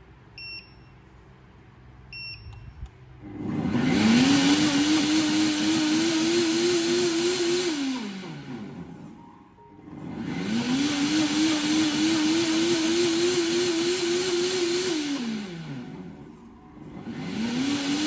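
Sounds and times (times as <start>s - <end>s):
blender motor whining: 3.2s - 9.2s, 9.8s - 18.0s.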